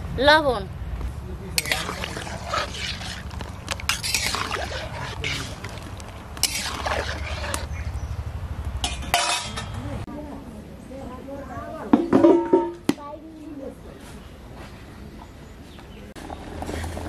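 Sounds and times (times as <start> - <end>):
metal spatula scraping wok: 1.6 - 7.8
water splashing: 1.6 - 7.8.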